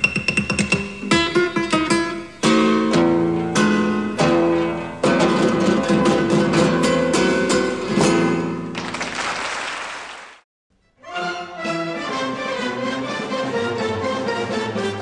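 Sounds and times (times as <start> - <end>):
plucked guitar chords: 0.0 - 8.7.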